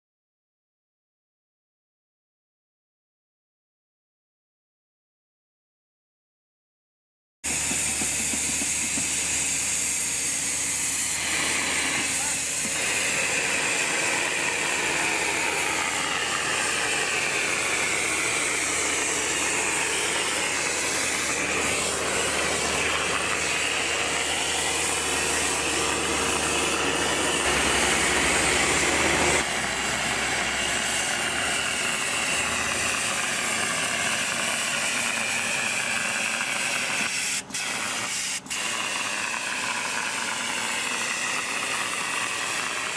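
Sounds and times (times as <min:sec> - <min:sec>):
machine engine running: 0:07.5 - 0:42.9
spray guns hissing: 0:07.5 - 0:42.9.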